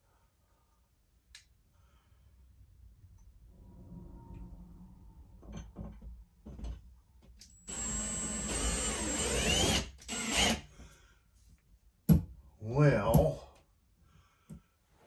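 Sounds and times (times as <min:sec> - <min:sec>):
cordless power driver running: 0:07.7 - 0:10.6.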